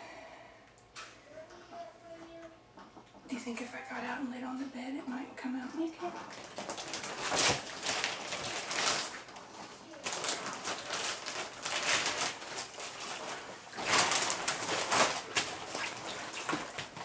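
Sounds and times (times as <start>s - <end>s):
water sloshing and gurgling: 6.1s - 17.0s.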